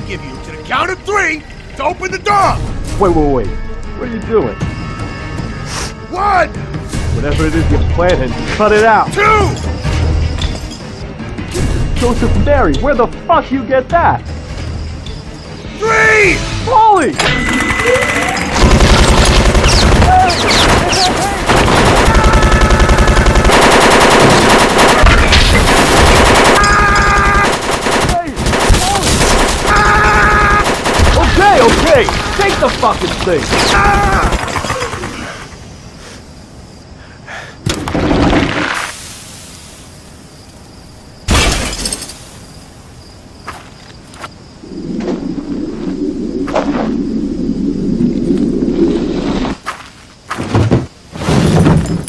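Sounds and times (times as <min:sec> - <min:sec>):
minigun firing rapidly: 0:17.3 - 0:32.0
clattering shattering noise: 0:41.3 - 0:42.4, 0:50.4 - 0:52.0.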